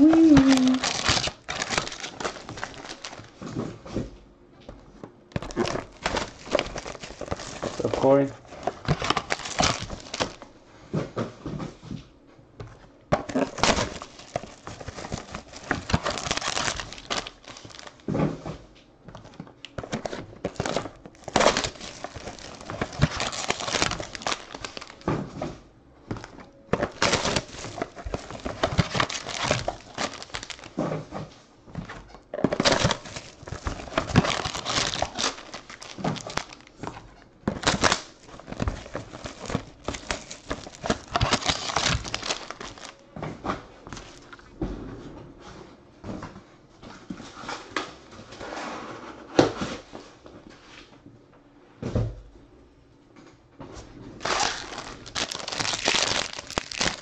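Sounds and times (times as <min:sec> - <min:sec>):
plastic wrap crinkling and tearing: 0:00.0 - 0:03.6, 0:05.4 - 0:10.5, 0:13.2 - 0:18.2, 0:19.2 - 0:25.2, 0:26.1 - 0:30.9, 0:32.4 - 0:43.0, 0:43.9 - 0:44.5, 0:54.2 - 0:57.0.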